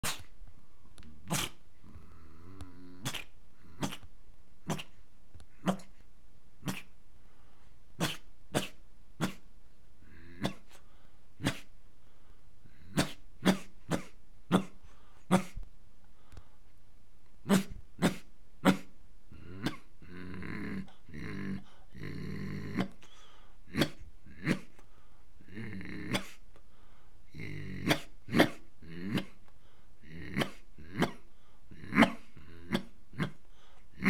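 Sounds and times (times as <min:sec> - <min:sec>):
man imitating dog barks: 0:01.2 - 0:01.6, 0:03.0 - 0:04.0, 0:04.6 - 0:04.9, 0:05.6 - 0:05.9, 0:06.6 - 0:06.9, 0:08.0 - 0:09.4, 0:10.1 - 0:10.8, 0:11.4 - 0:11.7, 0:12.8 - 0:15.6, 0:17.4 - 0:23.0, 0:23.7 - 0:24.8, 0:25.5 - 0:26.4, 0:27.3 - 0:29.4, 0:30.0 - 0:33.4.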